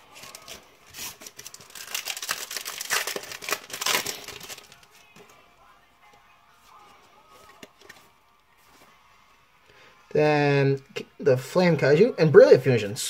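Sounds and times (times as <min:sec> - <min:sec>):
foil wrapper crinkling and tearing: 0:00.0 - 0:05.0.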